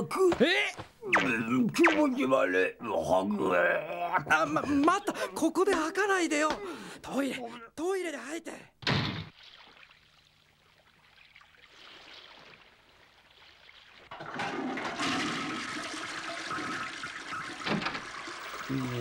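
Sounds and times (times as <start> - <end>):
toilet flushing water rush: 14.1 - 19.0.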